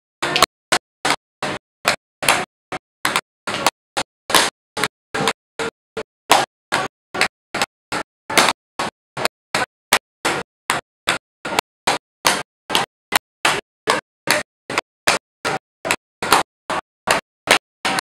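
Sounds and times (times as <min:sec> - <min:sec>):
tap shoes clicking on a board: 0:00.2 - 0:18.0.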